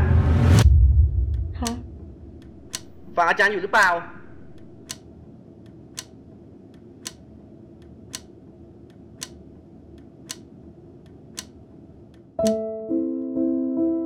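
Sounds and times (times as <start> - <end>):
low steady hum: 0.0 - 12.4
clock ticking: 1.6 - 5.0.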